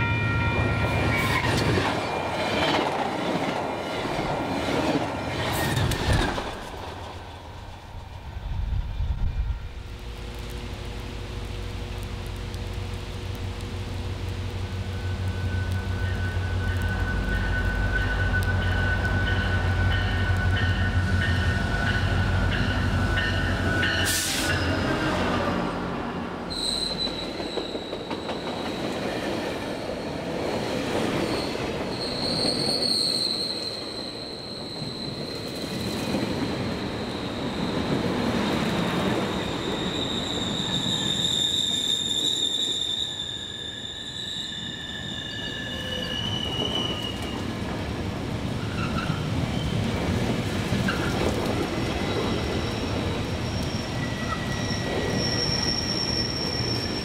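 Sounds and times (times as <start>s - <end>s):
train wheel squeal: 0.0s - 2.9s, 14.9s - 25.2s, 26.5s - 47.7s, 48.5s - 57.0s
diesel locomotive engine rumble: 5.2s - 28.9s.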